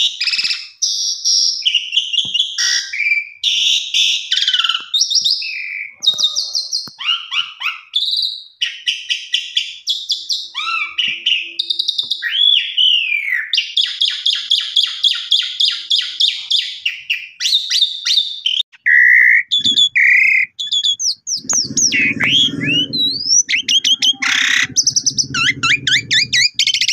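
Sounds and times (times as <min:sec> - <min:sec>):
starling singing: 0:19.5 - 0:26.9.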